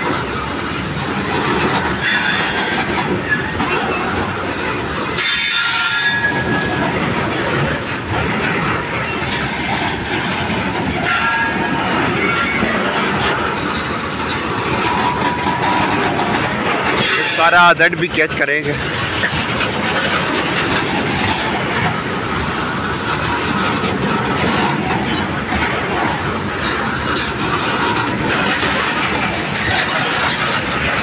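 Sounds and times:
train wheels rumbling on rails: 0.0 - 31.0
high-pitched wheel squeals: 2.0 - 4.1, 5.2 - 6.8.

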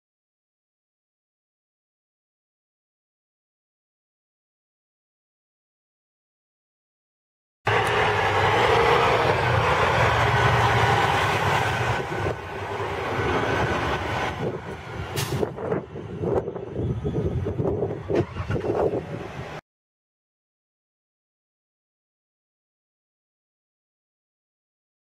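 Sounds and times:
truck driving past: 7.7 - 19.6.

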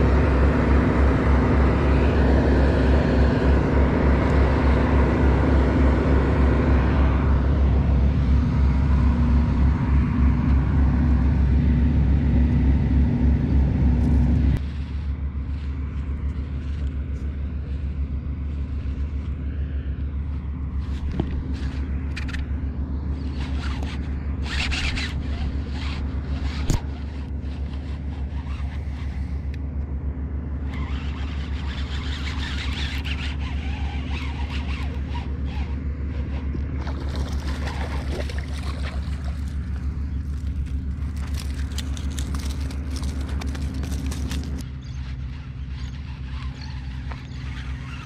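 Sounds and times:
motor droning: 0.0 - 48.0
rustling and scraping: 13.9 - 29.6, 30.6 - 48.0.

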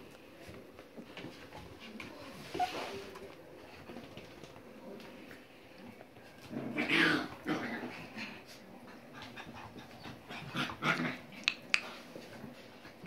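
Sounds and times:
puppies play-fighting noises: 5.9 - 13.0.

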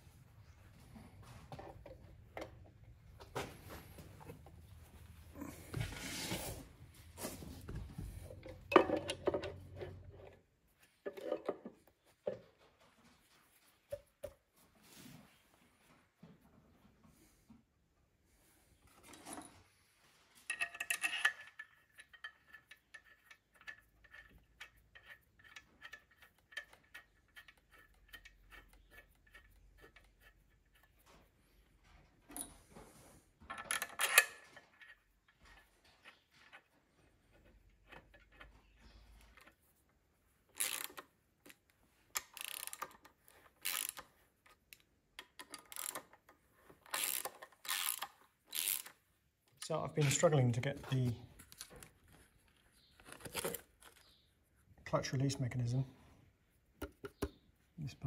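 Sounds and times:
spanner clanking on bolt: 20.5 - 29.5.

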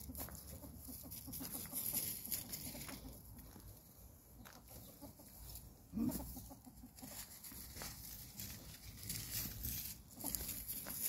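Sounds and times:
ferret scrabbling in dry leaves: 0.0 - 3.2, 7.0 - 11.0.

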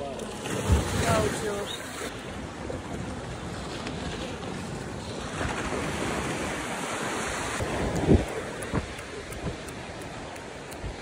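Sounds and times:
sea waves washing onto beach: 0.0 - 11.0
wind buffeting microphone: 7.4 - 11.0.

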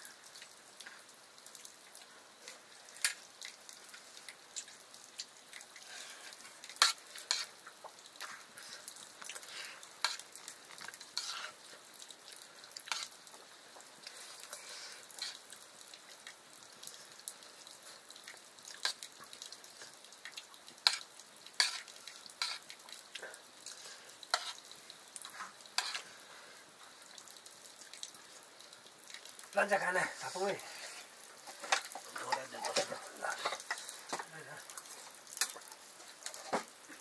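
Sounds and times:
food sizzling in a pan: 0.0 - 37.0
spoon scraping a pan: 5.9 - 7.6, 10.0 - 10.3, 11.2 - 11.6, 12.9 - 13.2, 14.5 - 15.4, 20.8 - 22.7, 24.3 - 24.7, 25.3 - 26.1.

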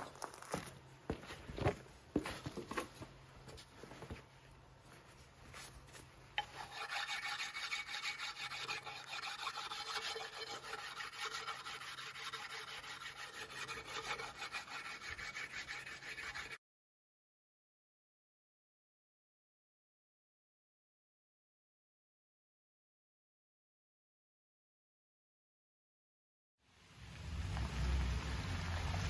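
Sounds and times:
knocks and shuffles: 0.0 - 6.4
rasping rubbing on axe handle: 6.4 - 16.6.

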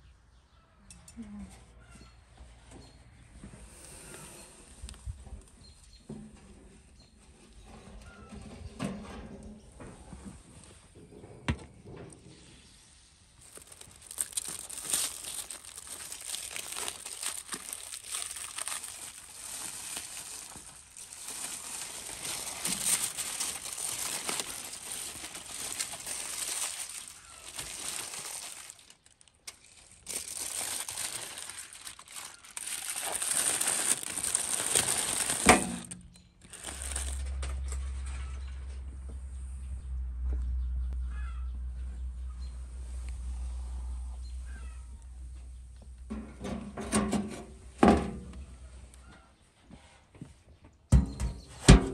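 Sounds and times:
foil crackling: 13.4 - 37.9
low steady rumble: 35.8 - 46.9.

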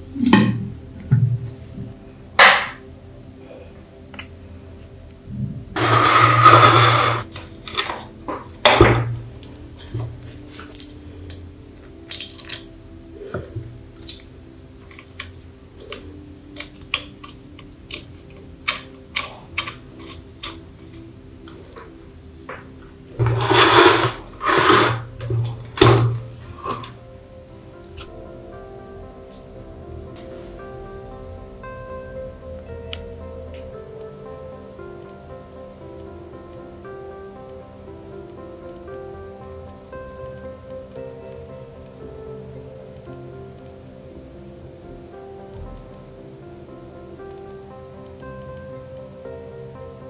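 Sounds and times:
hands handling metal lamp: 23.2 - 27.0.

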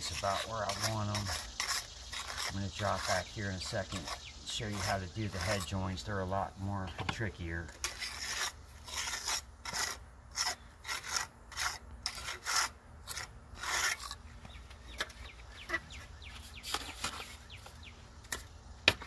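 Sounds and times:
trowel scraping mortar: 0.0 - 7.0, 7.6 - 17.7.

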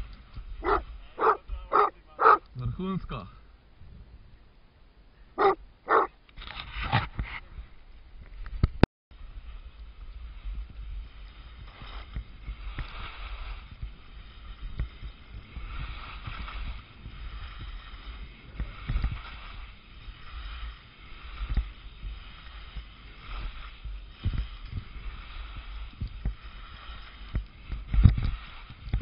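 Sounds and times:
skis hissing through snow: 0.0 - 1.9, 9.2 - 29.0.

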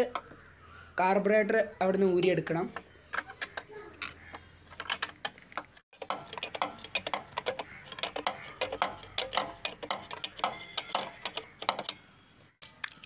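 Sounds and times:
screwdriver metallic clicks and taps: 3.2 - 12.0.

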